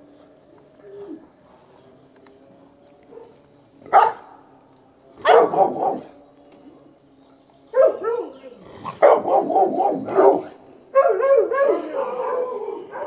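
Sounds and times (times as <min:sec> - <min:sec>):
puppies barking: 0:03.0 - 0:04.4, 0:05.2 - 0:06.2, 0:07.7 - 0:13.0.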